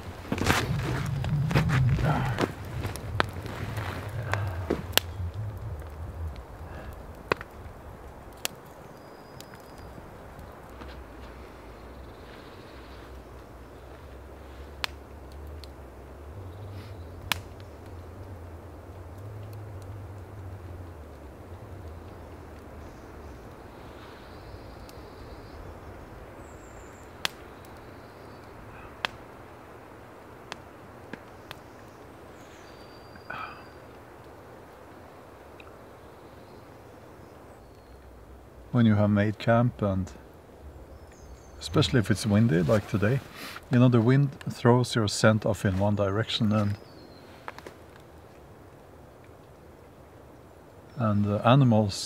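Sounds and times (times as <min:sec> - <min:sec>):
wind rushing: 0:00.0 - 0:08.3
low wind rumble: 0:00.0 - 0:52.0
twigs crackling and popping: 0:00.0 - 0:52.0.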